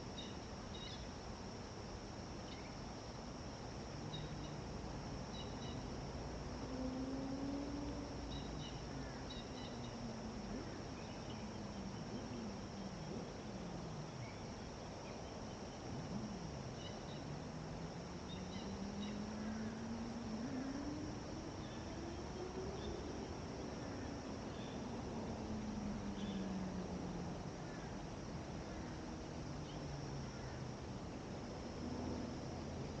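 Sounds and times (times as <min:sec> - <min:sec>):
high insect trill: 0:00.0 - 0:33.0
distant engine hum: 0:02.5 - 0:33.0
faint bird chirps: 0:05.3 - 0:05.9.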